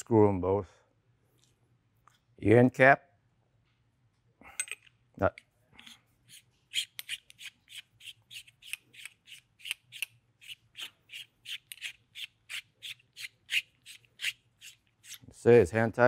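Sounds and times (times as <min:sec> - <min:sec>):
metal cap screwing scratchy strokes: 0:05.8 - 0:15.4.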